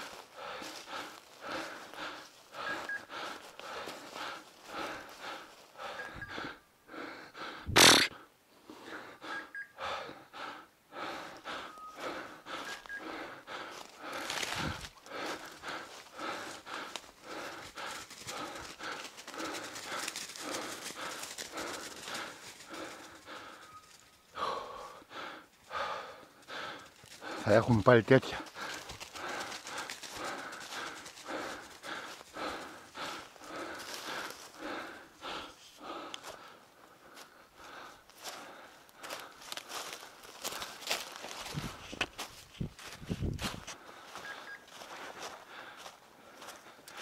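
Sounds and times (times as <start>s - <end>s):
footsteps crunching dry leaves: 13.8s - 16.0s, 39.0s - 46.5s
branches brushing and scraping: 14.2s - 15.0s.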